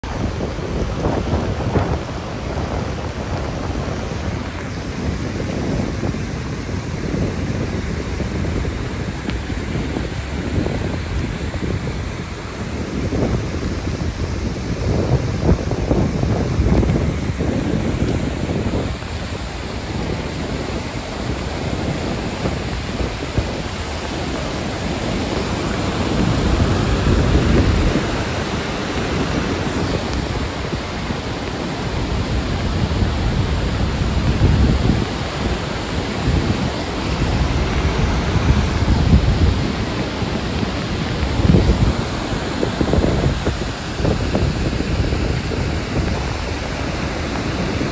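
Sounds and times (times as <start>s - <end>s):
whitewater rushing: 0.0s - 47.9s
wind gusting on microphone: 0.0s - 47.9s.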